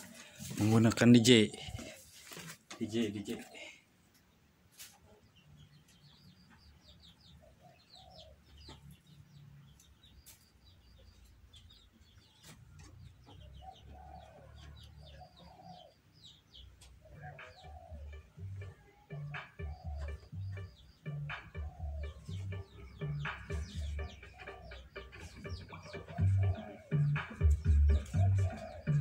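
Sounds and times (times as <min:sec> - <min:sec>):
chickens clucking: 0:00.0 - 0:29.0
small birds chirping: 0:00.0 - 0:29.0.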